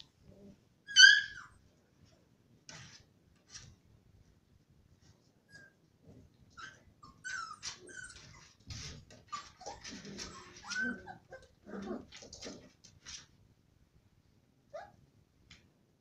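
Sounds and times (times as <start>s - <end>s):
puppies yipping and whimpering: 0.9s - 1.6s, 6.6s - 8.6s, 9.2s - 12.6s
puppies growling: 7.4s - 12.9s.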